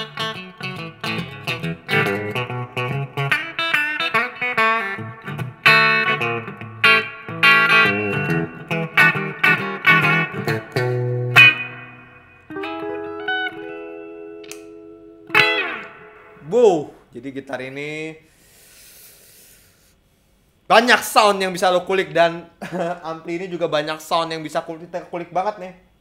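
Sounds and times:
clean electric guitar with reverb: 0:00.0 - 0:16.6.

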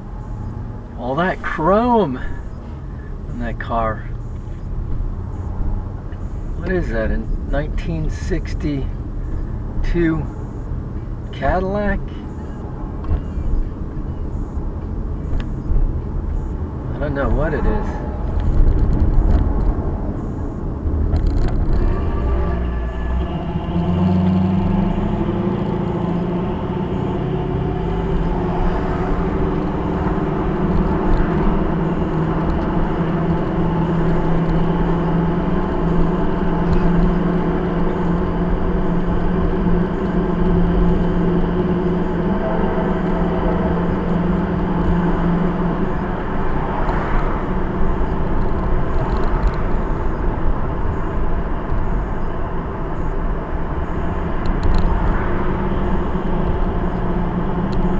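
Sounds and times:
car engine and road noise: 0:00.0 - 0:57.9
low steady drone: 0:12.0 - 0:57.9.

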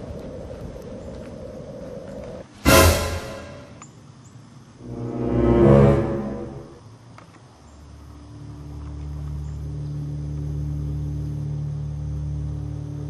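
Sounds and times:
loud hit: 0:02.7 - 0:03.8
deep rumble: 0:04.8 - 0:06.8.

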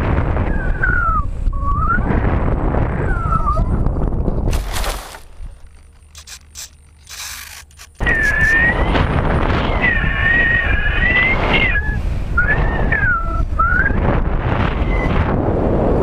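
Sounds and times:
airflow rushing over camera: 0:00.0 - 0:16.0
wavering whistle: 0:00.5 - 0:02.2, 0:08.0 - 0:09.0, 0:09.6 - 0:14.1.

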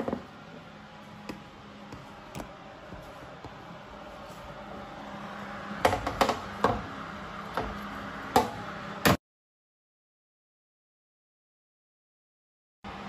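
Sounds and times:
steady low hum: 0:00.0 - 0:09.1.

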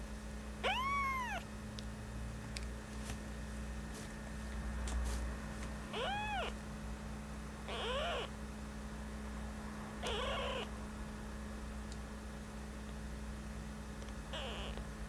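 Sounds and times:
kitten mewing: 0:00.6 - 0:01.5, 0:05.9 - 0:06.6, 0:07.7 - 0:08.3, 0:10.0 - 0:10.7, 0:14.3 - 0:14.8.

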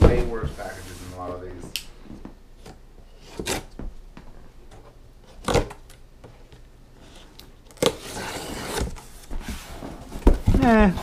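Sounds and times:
knife cutting cardboard box: 0:07.8 - 0:09.7.

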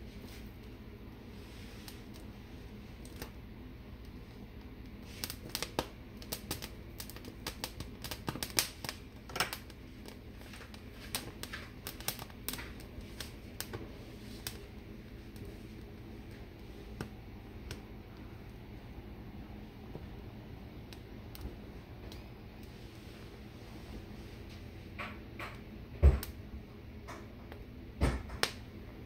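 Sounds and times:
gas burner: 0:00.0 - 0:29.0
pepper skins crackling and popping: 0:01.8 - 0:22.8.

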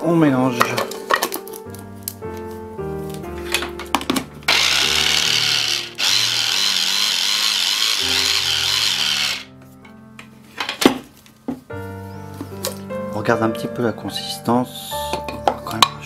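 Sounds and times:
electric chopper motor running: 0:04.5 - 0:09.5.

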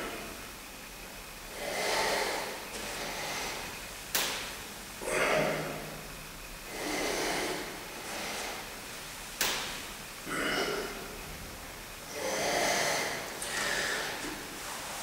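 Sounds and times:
man breathing heavily: 0:01.5 - 0:03.9, 0:05.0 - 0:06.0, 0:06.6 - 0:09.0, 0:10.2 - 0:11.3, 0:12.1 - 0:14.6.

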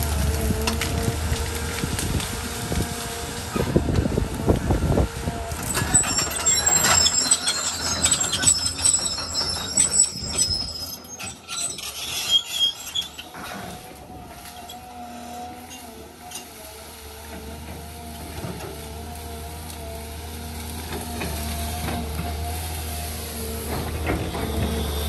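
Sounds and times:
branches crackling and snapping: 0:00.0 - 0:04.7
excavator engine and hydraulics: 0:00.0 - 0:25.0
high squeals: 0:05.5 - 0:13.4.

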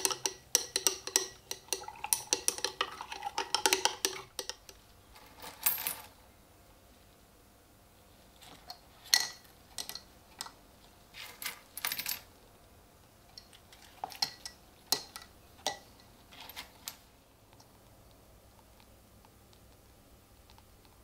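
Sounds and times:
coins clinking: 0:05.2 - 0:06.2, 0:11.2 - 0:12.3.

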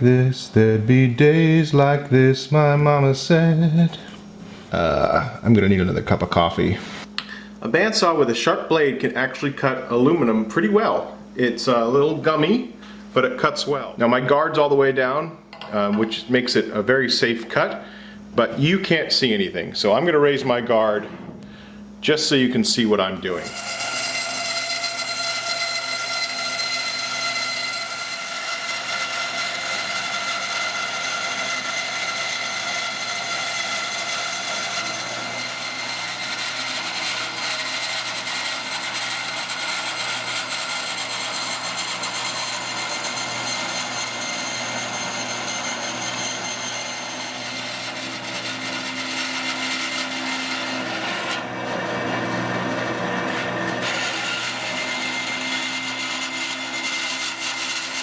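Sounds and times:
bandsaw cutting metal sheet: 0:01.2 - 0:04.2, 0:23.2 - 0:58.0.

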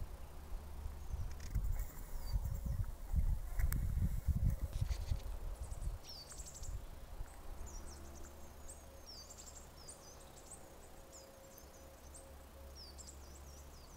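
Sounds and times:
low rumble on microphone: 0:00.0 - 0:09.3
birds chirping and singing: 0:00.9 - 0:03.6, 0:04.4 - 0:13.9.

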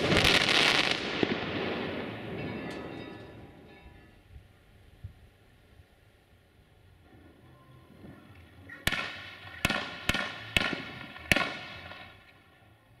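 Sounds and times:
fireworks banging with echo: 0:00.0 - 0:04.3, 0:07.9 - 0:12.5.

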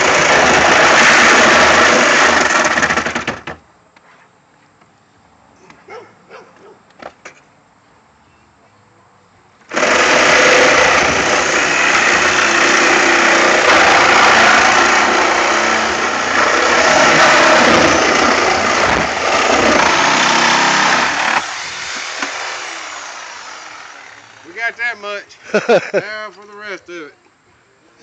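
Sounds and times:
reciprocating saw cutting sheet metal: 0:00.0 - 0:03.2, 0:09.7 - 0:24.6.

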